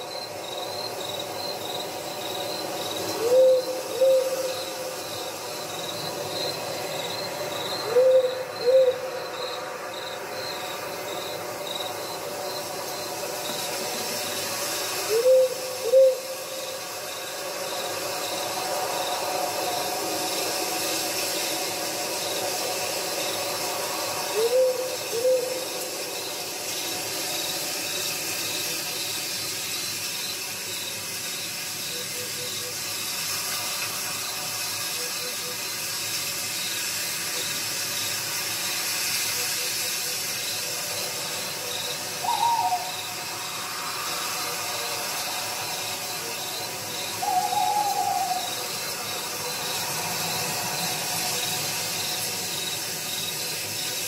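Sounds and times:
background hiss: 0.0 - 54.0
owl hooting: 3.1 - 5.0, 7.8 - 9.4, 15.0 - 16.8, 24.2 - 25.7, 41.6 - 43.2, 47.0 - 49.0.

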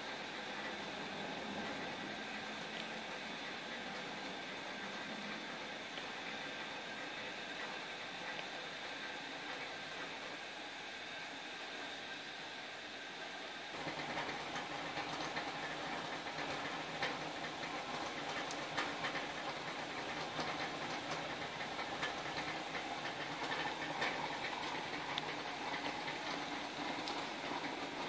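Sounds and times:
steam hissing: 0.0 - 12.7, 13.7 - 28.0
boiler water burbling: 13.8 - 28.0.

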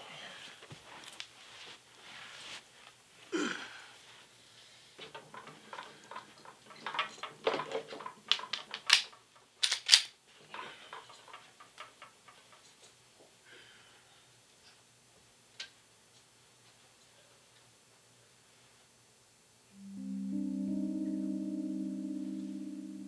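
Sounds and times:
objects clicking and knocking: 5.0 - 12.9.

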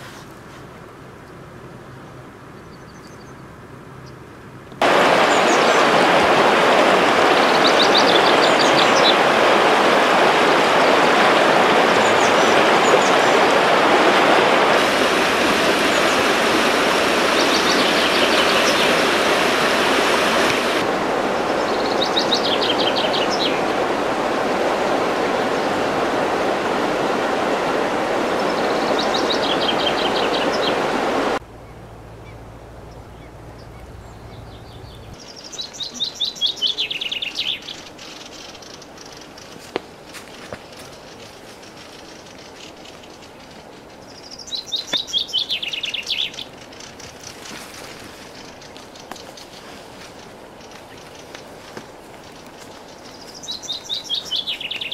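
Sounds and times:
songbird trills: 2.0 - 4.2, 31.5 - 54.9
water rushing over rocks: 4.8 - 31.4.

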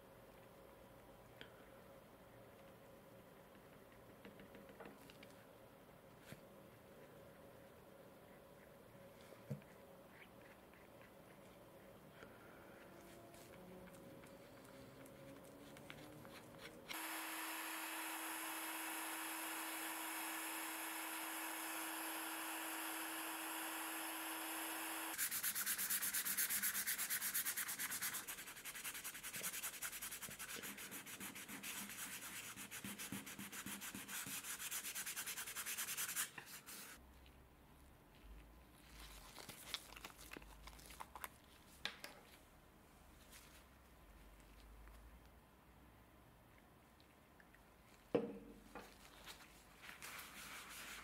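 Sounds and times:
hand-sanding leather: 15.7 - 37.0, 50.0 - 51.0.

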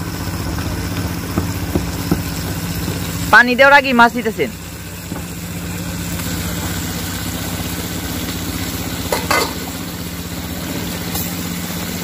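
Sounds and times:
low engine-like hum: 0.0 - 12.0
fish sizzling in a pot: 4.4 - 12.0.

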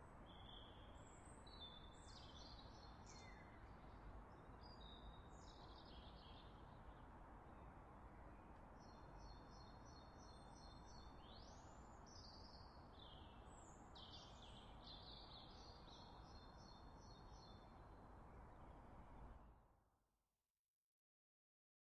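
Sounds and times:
songbird singing: 0.0 - 7.0, 8.4 - 17.8.

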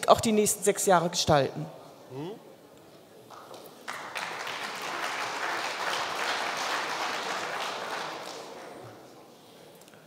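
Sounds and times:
audience applauding: 3.3 - 8.8.

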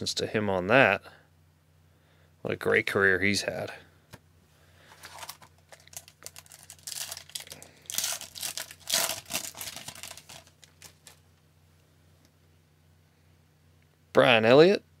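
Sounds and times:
foil wrapper crinkling and tearing: 4.9 - 11.2.

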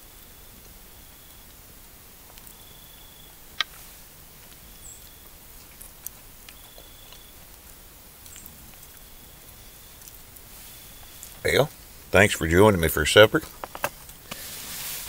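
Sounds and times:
low outdoor hiss: 0.0 - 15.0.

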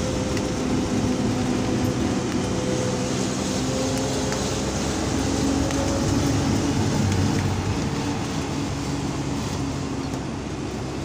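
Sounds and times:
road and wind noise: 0.0 - 11.0
vehicle engine hum: 0.0 - 11.0.

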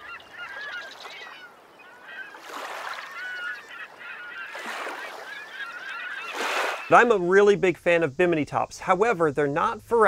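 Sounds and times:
flock of birds calling: 0.0 - 7.3.

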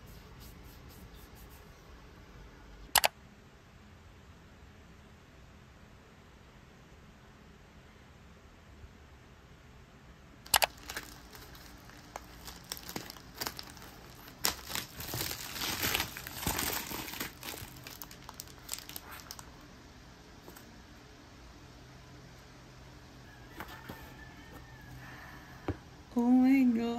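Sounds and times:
sharp clicks: 2.9 - 3.1, 10.5 - 10.8
scissors cutting parcel: 10.5 - 19.4
bubble wrap crinkling: 10.7 - 19.7.

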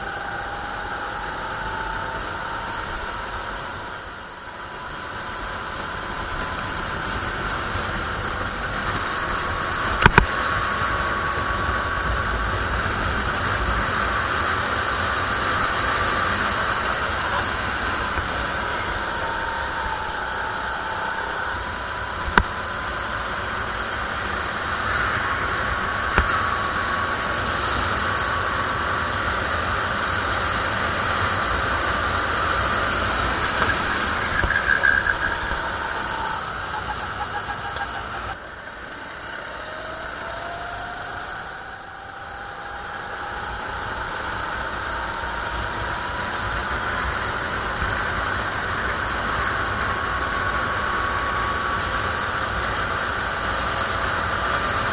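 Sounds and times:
kart engine running hard: 0.0 - 54.9
brief squeal: 32.8 - 38.4.

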